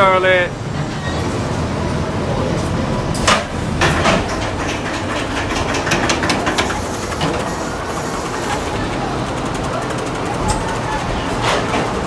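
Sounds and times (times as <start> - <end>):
ride car rumbling on track: 0.0 - 12.0
track clacking and clicking: 2.6 - 12.0.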